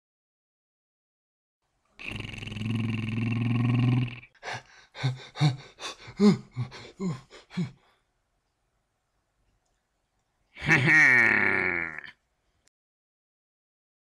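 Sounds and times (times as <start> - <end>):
short grunting vocal sounds: 2.0 - 4.4, 10.6 - 12.2.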